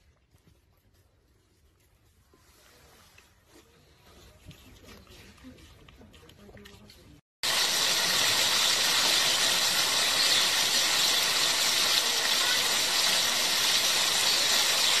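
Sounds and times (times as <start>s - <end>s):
steady hiss: 7.4s - 15.0s.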